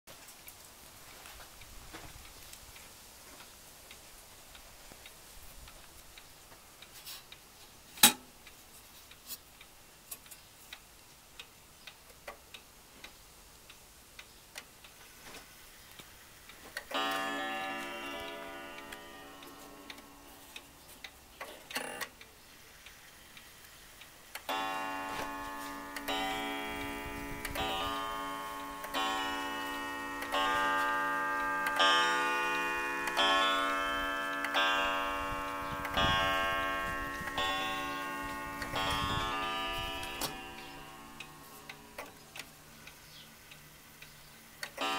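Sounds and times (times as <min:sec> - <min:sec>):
wall clock ticking: 0:16.0 - 0:44.9
clock striking ringing strokes: 0:16.9 - 0:20.8, 0:24.5 - 0:42.0.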